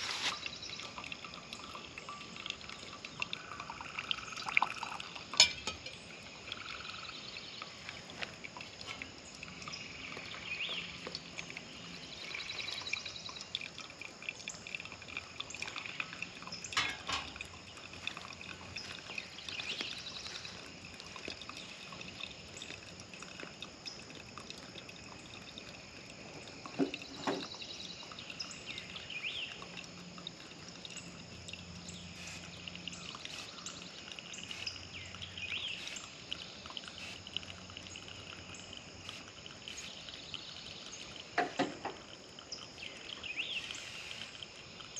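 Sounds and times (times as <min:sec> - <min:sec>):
coffee dripping: 0:00.0 - 0:44.9
birds chirping: 0:09.0 - 0:13.6, 0:17.6 - 0:22.8.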